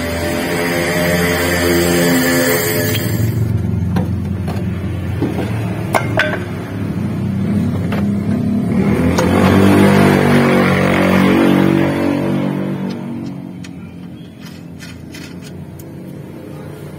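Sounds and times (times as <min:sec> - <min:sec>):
steady droning background: 0:00.0 - 0:08.4.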